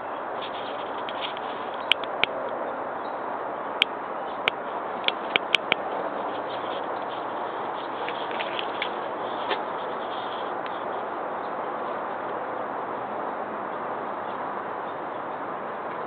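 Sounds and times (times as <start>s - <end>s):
sharp clicks: 3.8s - 5.9s.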